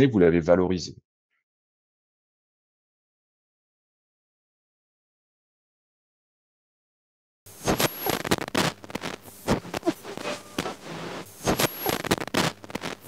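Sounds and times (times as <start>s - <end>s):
high tones: 9.6s - 12.1s.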